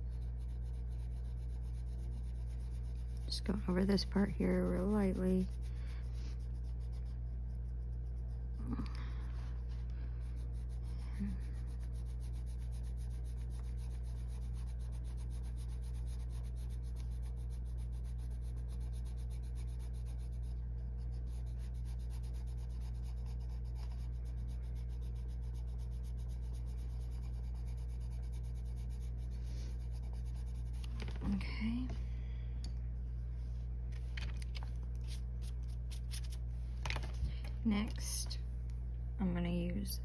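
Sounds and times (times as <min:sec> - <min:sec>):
pencil shading on paper: 0:00.0 - 0:31.4
steady low hum: 0:00.0 - 0:40.0.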